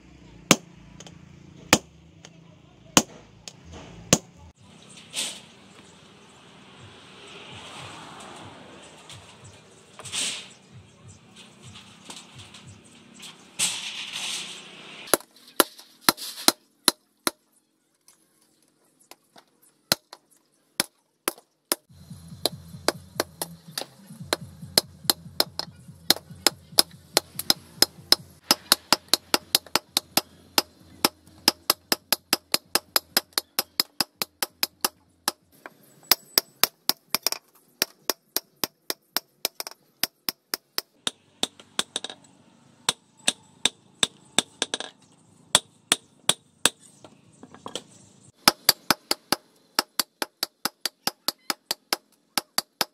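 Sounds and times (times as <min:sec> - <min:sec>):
hammer striking hot steel on anvil: 0:22.4 - 0:35.0.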